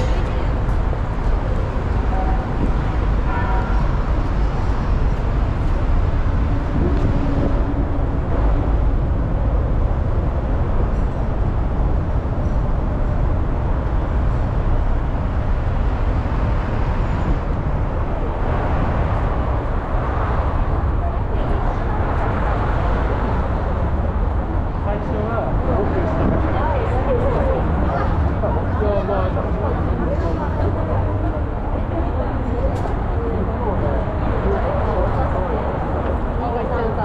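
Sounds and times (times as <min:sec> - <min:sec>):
road traffic rumble: 0:00.0 - 0:37.0.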